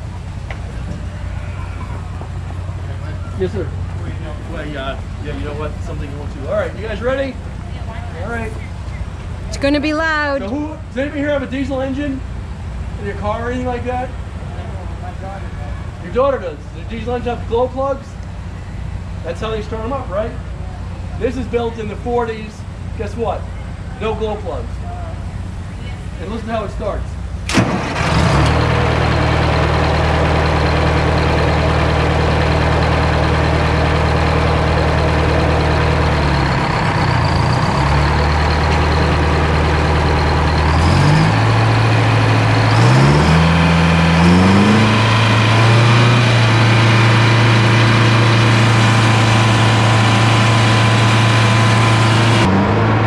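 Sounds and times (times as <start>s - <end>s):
high supercharger whine: 26.3s - 53.0s
diesel engine cranking and running: 27.0s - 53.0s.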